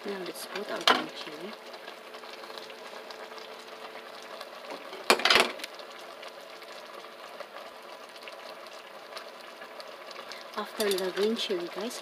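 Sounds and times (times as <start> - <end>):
clatter at steel pot: 4.7 - 5.7, 10.7 - 11.2.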